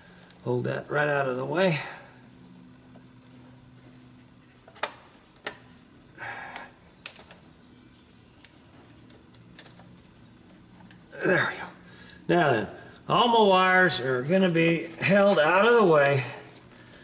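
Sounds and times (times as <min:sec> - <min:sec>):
low steady hum: 0:00.0 - 0:17.0
wire handling clicks: 0:06.5 - 0:07.4.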